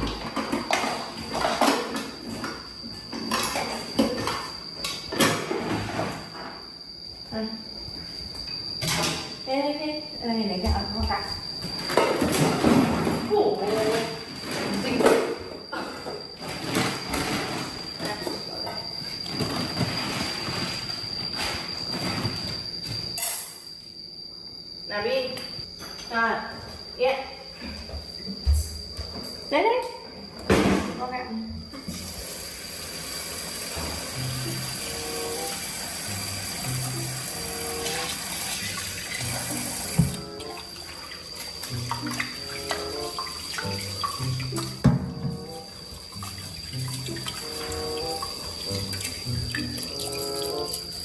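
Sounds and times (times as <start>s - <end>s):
high-pitched whine: 0.0s - 51.0s
rice rinsed by hand: 31.9s - 51.0s
tap water running into metal pot: 32.0s - 51.0s
background music of held notes: 39.0s - 40.7s, 41.7s - 51.0s.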